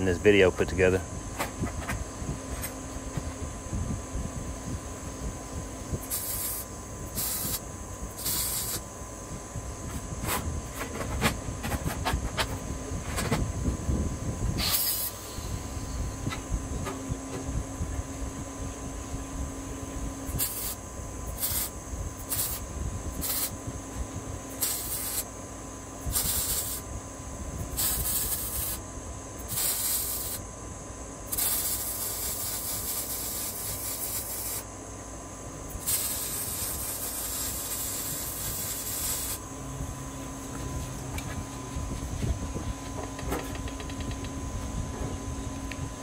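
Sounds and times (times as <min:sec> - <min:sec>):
welding arc crackling and hissing: 0:05.9 - 0:09.0, 0:14.6 - 0:15.8, 0:20.2 - 0:23.6, 0:24.5 - 0:25.4, 0:26.0 - 0:26.9, 0:27.6 - 0:30.5, 0:31.2 - 0:34.7, 0:35.7 - 0:39.5.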